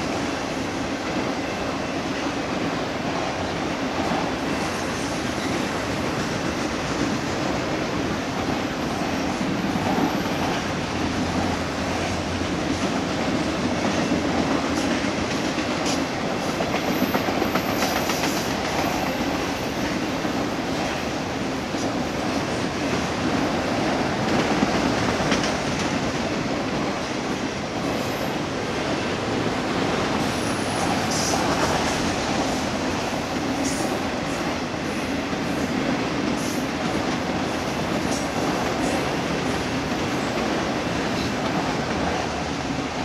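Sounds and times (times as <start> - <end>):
train wheels rumbling on rail: 0.0 - 43.0.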